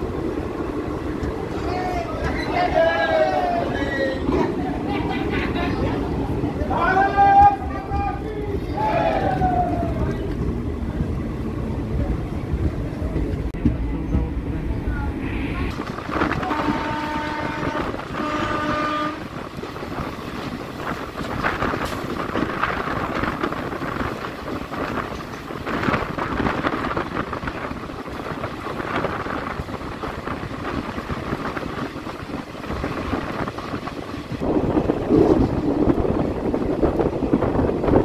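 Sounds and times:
train rumble and wheel clatter: 0:00.0 - 0:38.0
train horn blasts: 0:16.4 - 0:19.4.

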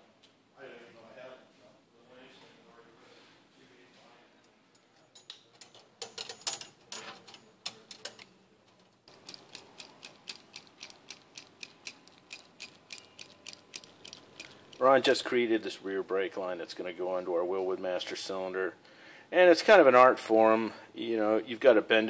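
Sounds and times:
metal hand tools clicking: 0:09.1 - 0:14.9.

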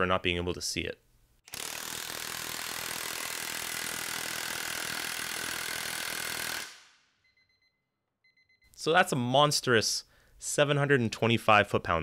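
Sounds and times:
impact wrench hammering: 0:01.5 - 0:06.9.

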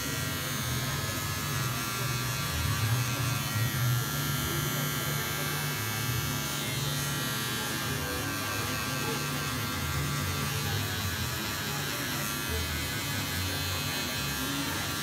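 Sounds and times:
electric hair clippers buzzing: 0:00.0 - 0:15.0.

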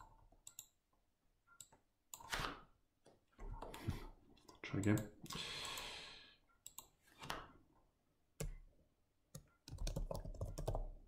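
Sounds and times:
computer mouse clicks: 0:00.0 - 0:00.8, 0:04.4 - 0:05.9, 0:06.5 - 0:07.5
keyboard keystrokes: 0:09.3 - 0:10.8.

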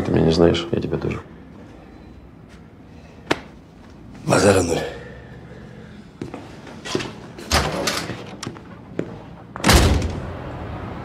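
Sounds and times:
door shutting with thud: 0:09.6 - 0:10.3.

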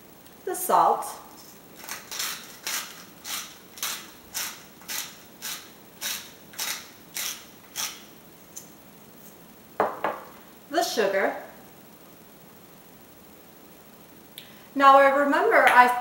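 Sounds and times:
salt grinder grinding rasps: 0:01.8 - 0:08.1.

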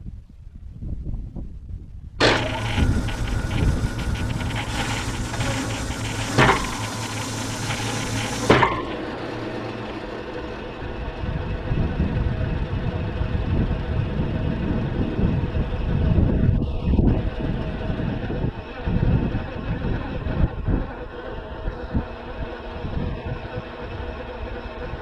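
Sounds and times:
high hissing whir: 0:02.2 - 0:12.1
sawmill engine running: 0:02.2 - 0:25.0
sharp knocks: 0:08.4 - 0:09.0.

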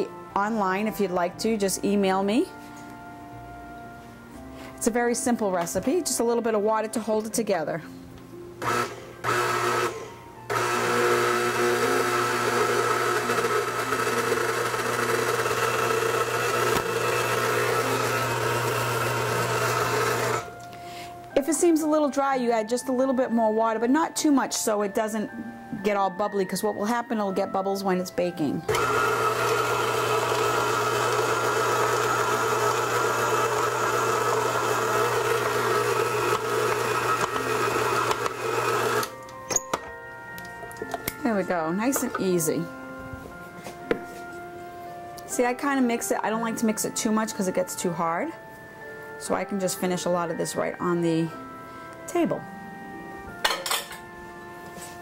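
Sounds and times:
beater working dough in steel bowl: 0:08.6 - 0:20.5, 0:28.7 - 0:39.1
stand mixer running: 0:08.6 - 0:20.5, 0:28.7 - 0:39.1.

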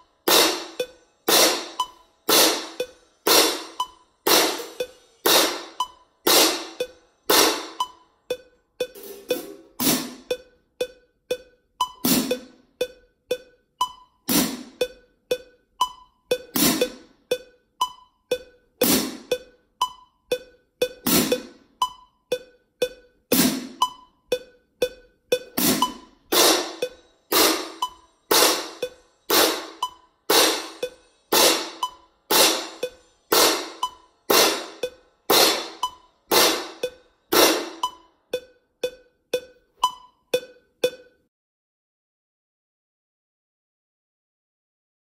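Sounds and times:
metronome ticking: 0:00.0 - 0:41.3
crash cymbals struck: 0:00.3 - 0:07.8, 0:08.9 - 0:10.3, 0:25.6 - 0:37.9.

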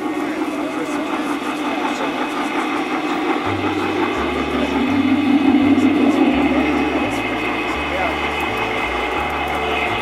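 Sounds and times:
model trains rolling hum: 0:00.0 - 0:10.0.

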